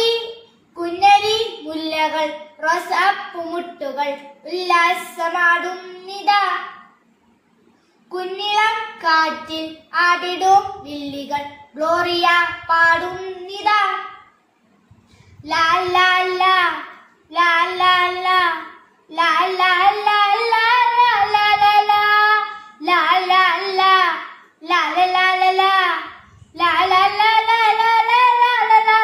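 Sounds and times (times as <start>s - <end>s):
child singing: 0.0s - 6.8s, 8.1s - 14.3s, 15.4s - 29.0s.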